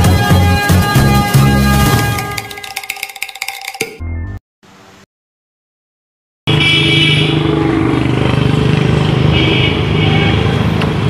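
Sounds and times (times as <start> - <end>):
car horns honking: 0.0 - 2.6, 6.5 - 7.4
vehicle engines running: 7.3 - 9.4.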